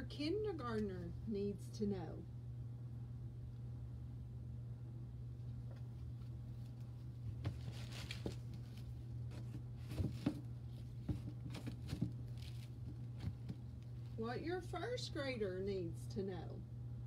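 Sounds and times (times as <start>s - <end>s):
low hum: 0.0s - 17.0s
books rustling: 5.6s - 14.2s
books knocking down softly: 7.3s - 13.7s.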